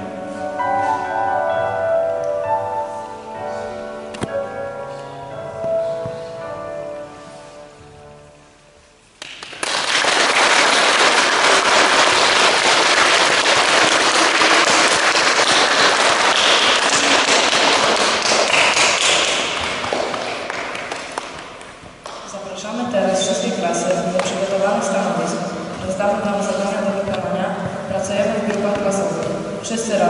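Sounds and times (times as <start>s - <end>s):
audience applauding: 9.2s - 22.2s.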